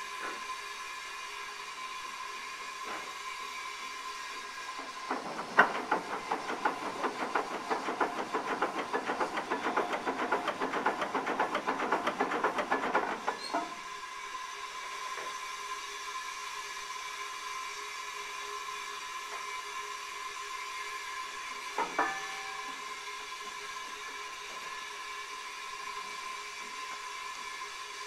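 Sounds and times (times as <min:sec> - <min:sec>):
crane chain rapid sharp beats: 0:05.1 - 0:13.4.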